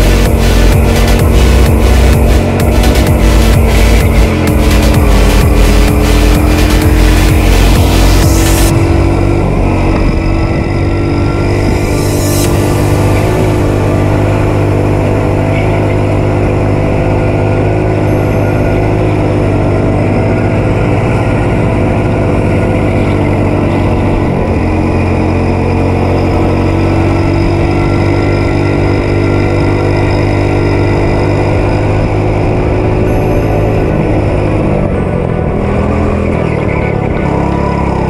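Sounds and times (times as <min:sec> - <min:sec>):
go-kart engine droning: 0:00.0 - 0:38.0.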